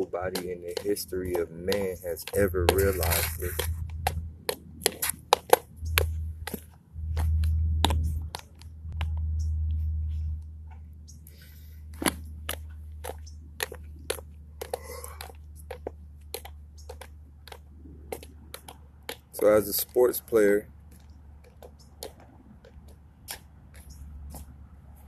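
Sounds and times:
low rumble: 2.4 - 4.5, 5.6 - 11.1.

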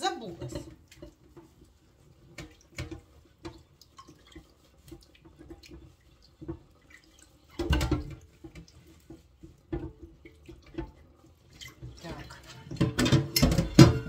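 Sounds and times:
water splashing and dripping: 0.0 - 14.0
dishes clinking in a sink: 5.4 - 14.0.

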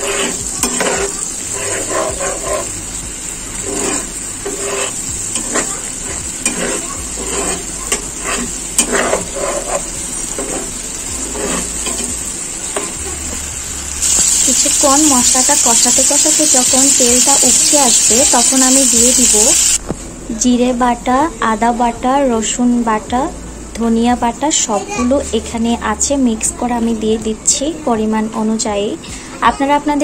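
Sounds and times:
masala sizzling in oil: 0.0 - 19.8
spatula scraping pan: 0.0 - 19.8.

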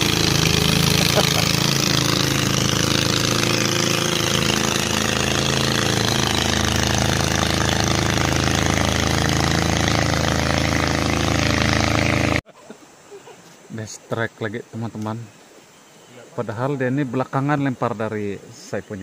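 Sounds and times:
outboard motor droning: 0.0 - 12.4.

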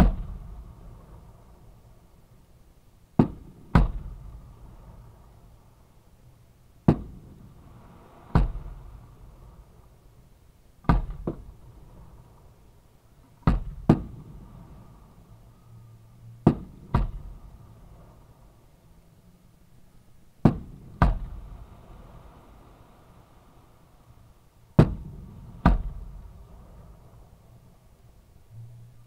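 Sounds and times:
fireworks booming: 3.2 - 4.8, 8.1 - 9.1, 13.4 - 14.7, 20.4 - 21.7, 24.7 - 26.9.

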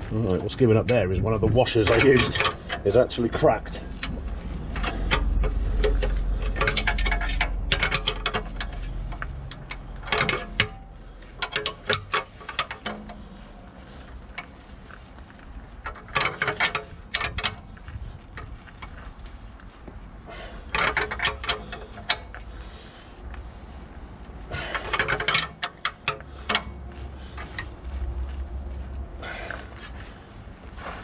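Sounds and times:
low rumble: 3.6 - 11.4.

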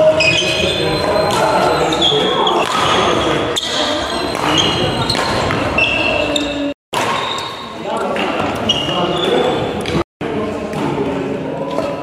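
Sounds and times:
shoes squeaking on hall floor: 0.0 - 10.0
racket hitting shuttlecock: 2.6 - 3.0, 3.6 - 5.8, 6.9 - 7.6.

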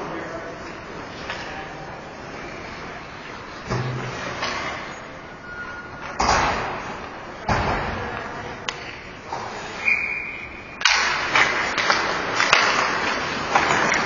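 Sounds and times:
puck hitting the boards: 10.8 - 14.0.

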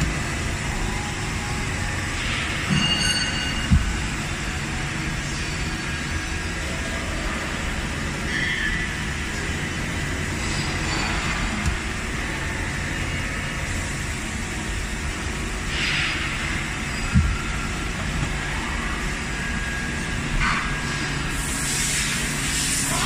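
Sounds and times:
machine thump: 2.7 - 4.3, 17.0 - 18.4.

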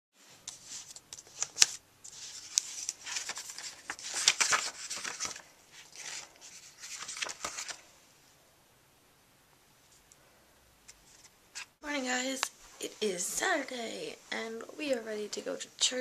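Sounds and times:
book pages rustling: 0.4 - 7.8, 10.9 - 11.8.

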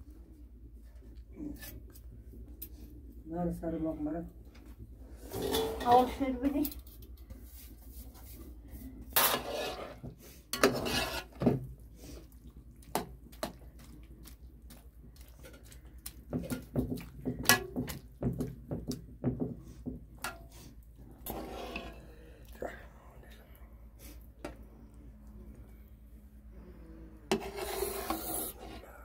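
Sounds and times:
dishes scraping: 5.2 - 6.2, 9.1 - 10.0, 10.6 - 11.5, 21.2 - 22.0, 27.3 - 28.8.

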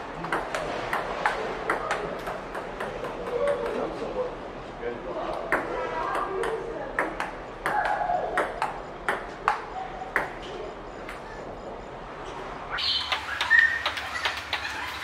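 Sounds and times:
table tennis ball clicking: 0.2 - 3.8, 5.5 - 10.4.

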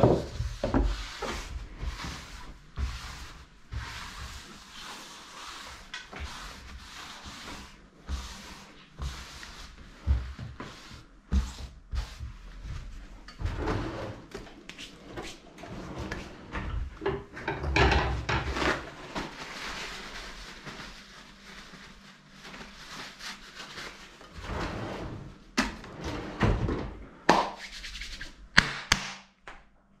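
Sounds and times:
paper towel rustling and crumpling: 0.0 - 13.2, 18.3 - 26.1.

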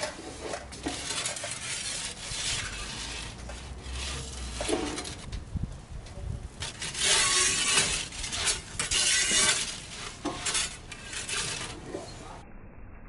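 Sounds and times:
metal pizza peel scraping stone: 0.0 - 5.3, 6.6 - 12.4.

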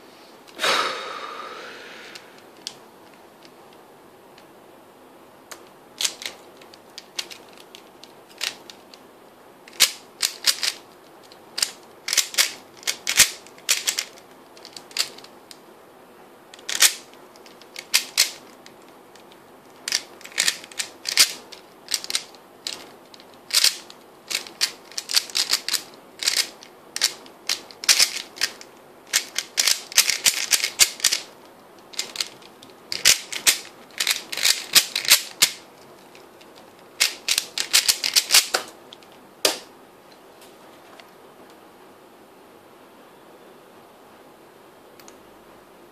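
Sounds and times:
plastic cube layers clacking: 5.6 - 9.0, 9.7 - 15.3, 16.6 - 31.3, 31.9 - 38.7.

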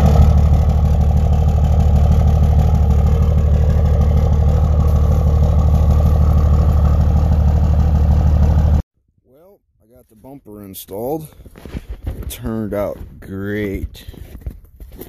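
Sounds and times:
pickup engine idling: 0.0 - 8.8.

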